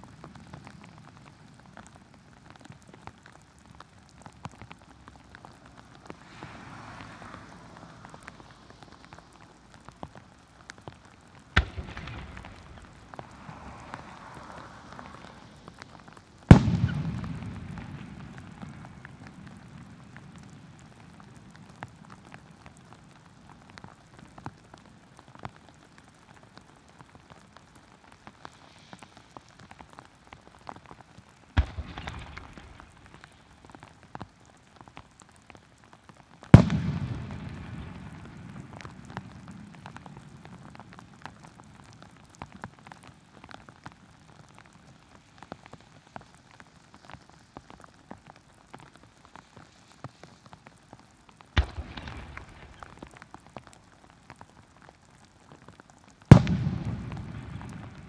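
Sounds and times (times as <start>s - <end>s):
heavy rain falling: 0.0s - 58.0s
raindrops ticking near microphone: 0.0s - 58.0s
firework shells bursting: 16.5s - 19.8s, 36.5s - 40.0s, 51.6s - 53.2s, 56.3s - 58.0s.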